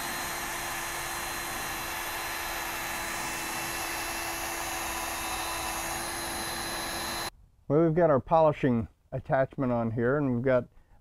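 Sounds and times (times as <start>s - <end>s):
cordless drill motor whine: 0.0s - 7.3s.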